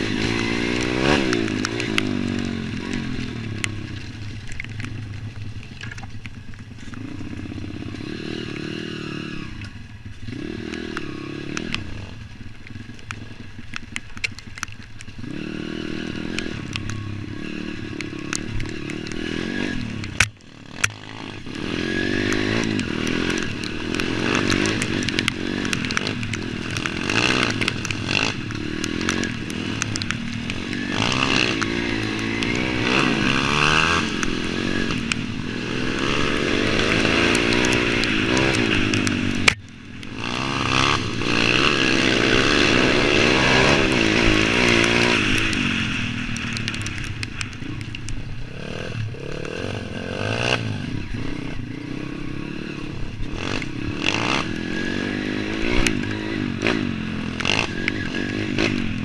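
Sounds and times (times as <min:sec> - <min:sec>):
motorbike engine revving: 0:00.0 - 0:14.4, 0:15.0 - 0:59.0.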